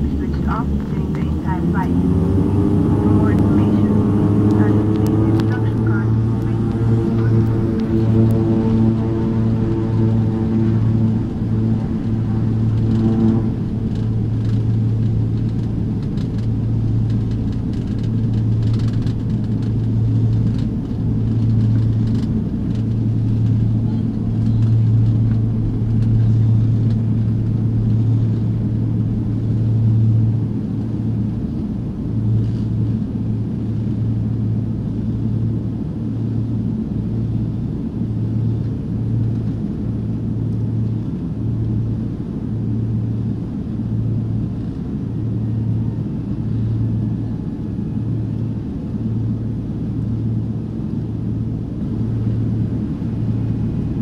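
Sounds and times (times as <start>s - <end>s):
aircraft engine drone: 0.0s - 54.0s.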